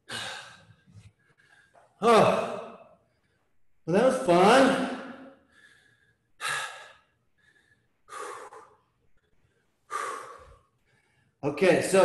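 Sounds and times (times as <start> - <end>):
man breathing hard: 0.0 - 2.0, 5.3 - 11.4.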